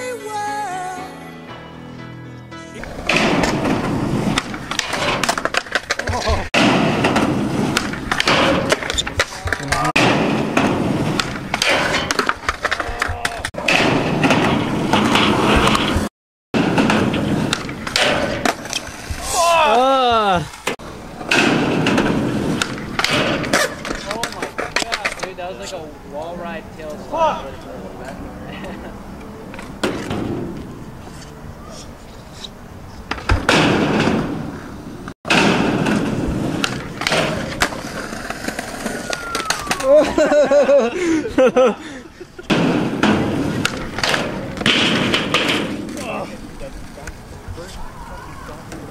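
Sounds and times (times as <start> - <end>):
skateboard wheels rolling on concrete: 2.3 - 48.9
skateboard clacks: 2.8 - 19.2, 20.6 - 25.4, 35.3 - 40.4, 42.4 - 47.7
skateboard sliding on metal rail: 2.8 - 19.7, 20.4 - 25.3, 29.5 - 40.7, 42.4 - 47.0.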